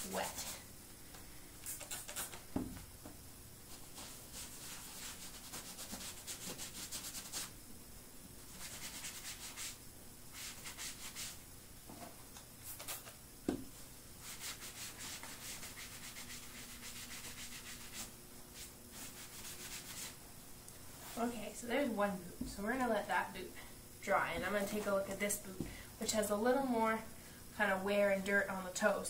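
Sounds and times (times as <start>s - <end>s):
thump: 2.6s - 2.8s.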